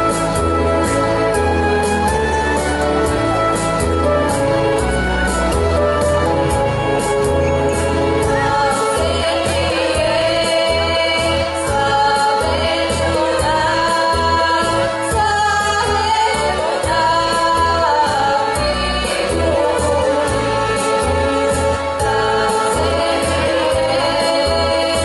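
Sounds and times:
instrumental accompaniment with beat: 0.0 - 25.0
folk song sung as duet: 8.2 - 25.0.

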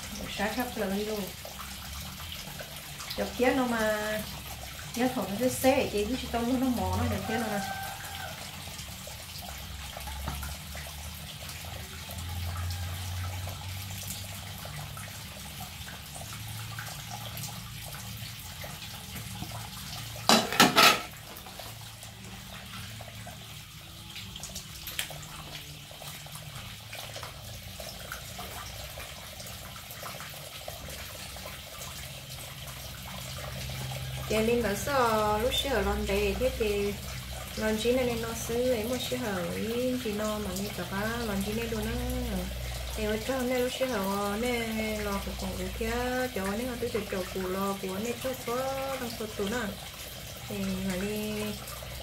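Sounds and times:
tap water running into sink: 0.0 - 52.0
dishes clattering: 20.3 - 21.2
plates clinking: 20.3 - 21.2.

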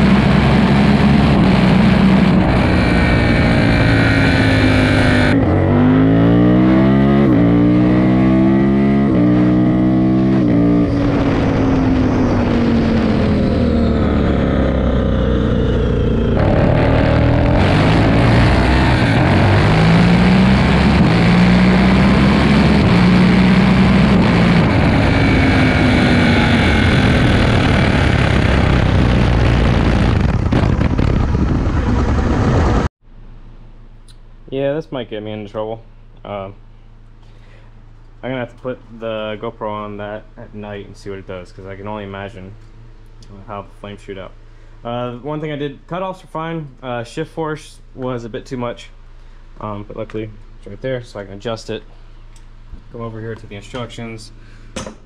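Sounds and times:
motorcycle engine revving: 0.0 - 32.9.

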